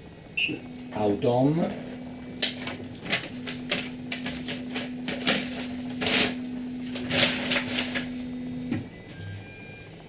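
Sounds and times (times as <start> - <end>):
stepper motors whining: 0.0 - 10.0.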